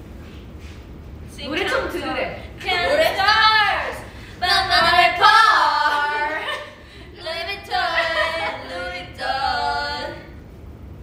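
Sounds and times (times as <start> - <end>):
women singing unaccompanied: 1.4 - 10.4.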